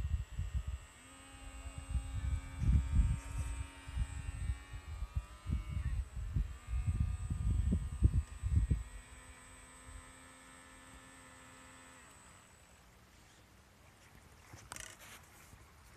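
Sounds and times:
wind buffeting microphone: 0:00.0 - 0:10.1
model boat motor whine: 0:00.0 - 0:13.4, 0:14.6 - 0:15.2.

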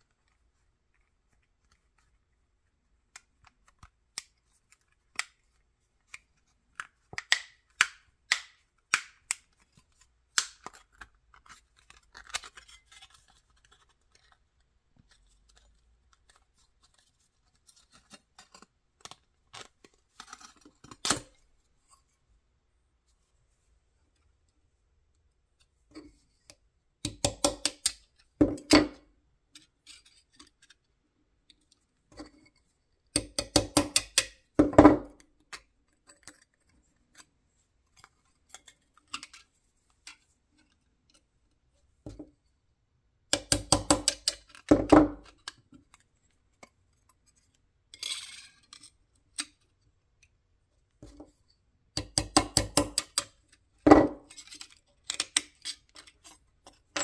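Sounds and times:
hammer tapping steel punch: 0:27.1 - 0:29.0, 0:33.2 - 0:34.4, 0:43.3 - 0:44.4, 0:52.0 - 0:53.3.

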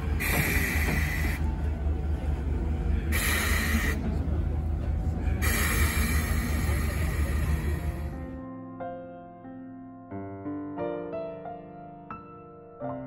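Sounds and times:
locomotive hissing puffs: 0:00.0 - 0:01.8, 0:02.9 - 0:04.4, 0:05.1 - 0:08.4.

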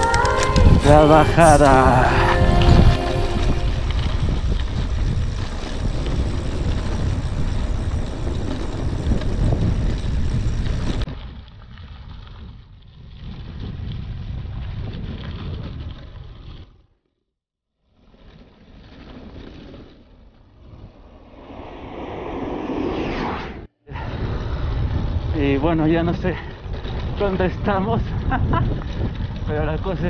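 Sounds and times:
wind rushing over microphone: 0:00.0 - 0:11.1, 0:20.6 - 0:30.0
bike tyres rumbling on dirt: 0:03.7 - 0:16.8, 0:17.9 - 0:22.3, 0:24.0 - 0:30.0.

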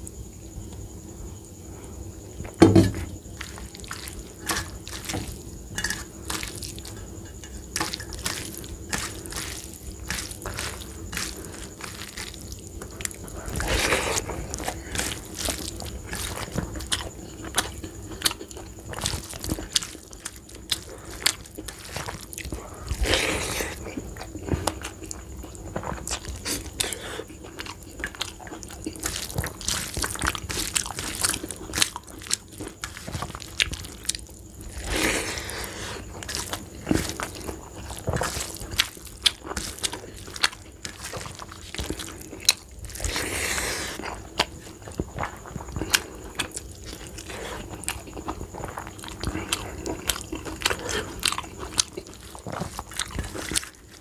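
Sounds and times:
fingers mixing rice on steel plate: 0:03.4 - 0:23.0
person chewing and lip-smacking: 0:44.0 - 0:54.0.

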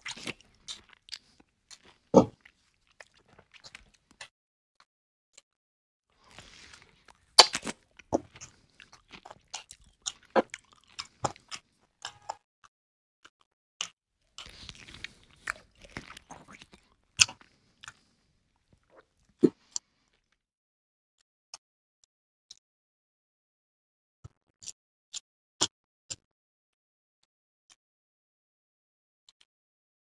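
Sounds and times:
biting into fried chicken: 0:00.0 - 0:04.3, 0:06.2 - 0:12.4, 0:14.4 - 0:18.1
person chewing with wet smacks: 0:00.0 - 0:04.3, 0:06.2 - 0:12.4, 0:14.4 - 0:20.3.

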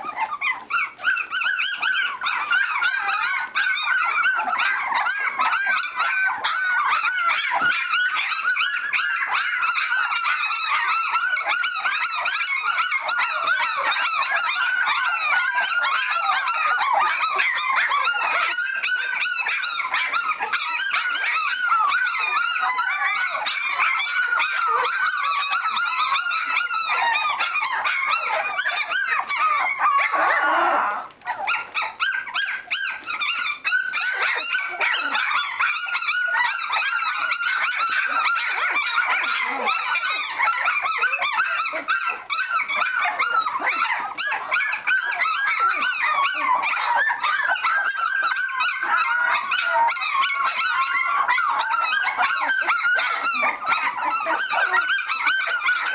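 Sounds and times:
puppies whining and yelping: 0:00.0 - 0:55.9.

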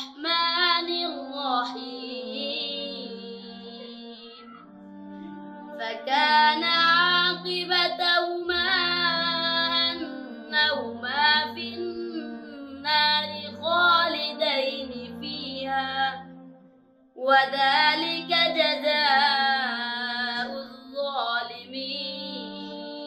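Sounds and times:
high voice singing: 0:00.0 - 0:16.2.

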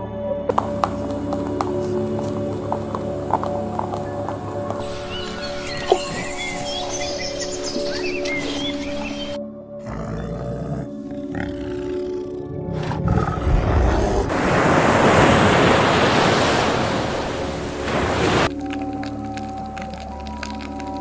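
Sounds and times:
background music: 0:00.0 - 0:14.3, 0:18.5 - 0:21.0
bear growling: 0:09.8 - 0:14.4.

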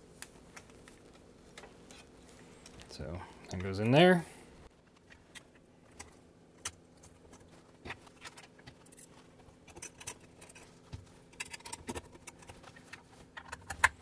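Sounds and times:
small metal parts clicking and clattering: 0:05.0 - 0:13.9.

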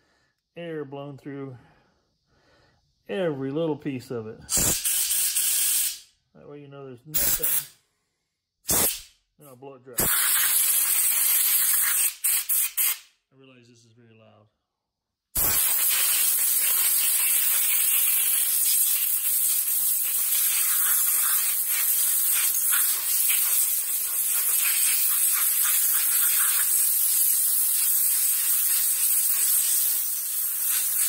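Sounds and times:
compressed air hissing: 0:04.5 - 0:06.1, 0:07.2 - 0:07.8, 0:08.7 - 0:09.1, 0:10.0 - 0:13.1, 0:15.4 - 0:31.0.

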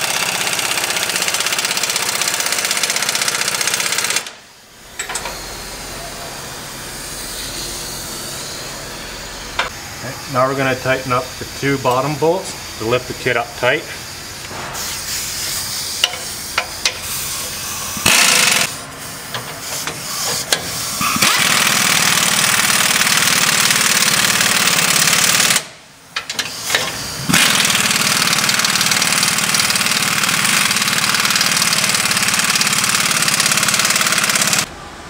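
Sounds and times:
air wrench running: 0:00.0 - 0:34.7.

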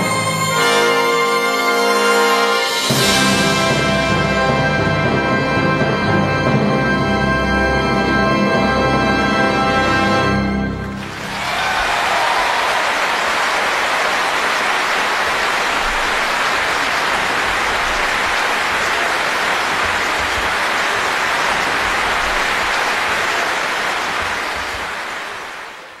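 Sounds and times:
audience applauding: 0:10.8 - 0:26.0.

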